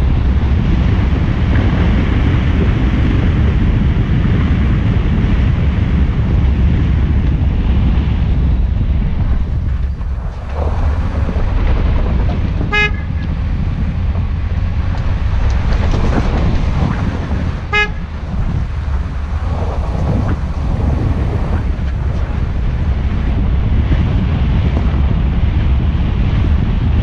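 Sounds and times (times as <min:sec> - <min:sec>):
moving vehicle: 0:00.0 - 0:27.0
wind rumble on microphone: 0:00.0 - 0:27.0
horn toots: 0:12.5 - 0:13.5, 0:17.6 - 0:18.7.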